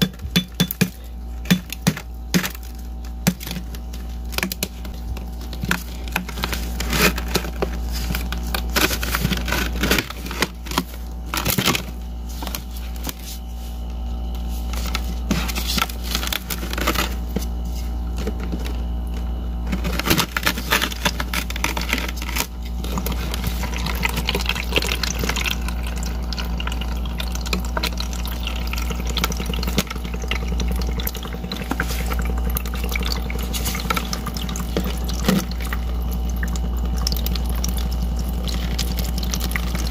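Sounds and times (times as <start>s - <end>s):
ice crackling and clicking: 0.0s - 13.1s
steady low hum: 0.0s - 39.9s
water trickling into colander: 19.9s - 39.9s.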